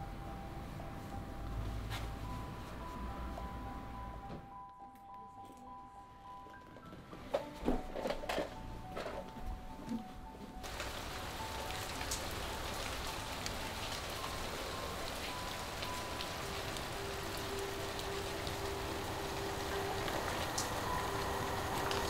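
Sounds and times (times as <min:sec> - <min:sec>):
rain on wet pavement: 0:10.6 - 0:22.0.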